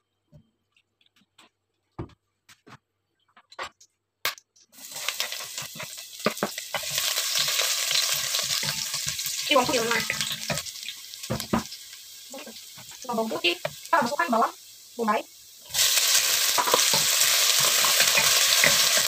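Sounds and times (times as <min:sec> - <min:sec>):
garlic sizzling in hot oil: 0:04.7 - 0:19.0.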